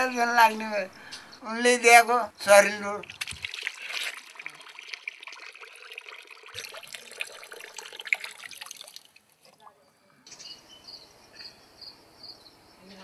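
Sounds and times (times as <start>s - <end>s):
water trickling and splashing: 2.6s - 9.8s
hands washing in water: 3.0s - 9.2s.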